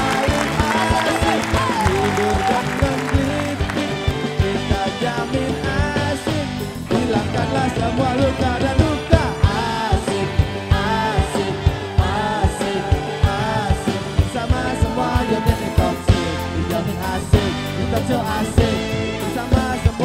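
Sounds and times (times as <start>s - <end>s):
woman singing: 0.0s - 6.3s
upbeat band music: 0.0s - 20.0s.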